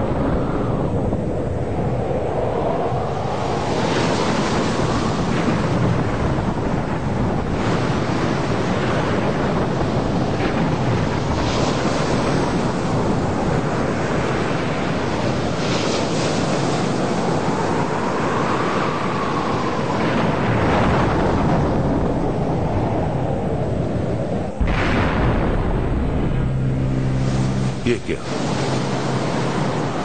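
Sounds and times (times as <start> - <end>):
stormy wind: 0.0 - 30.0
sea waves crashing: 24.5 - 30.0
faint rising and falling tone: 24.6 - 29.4.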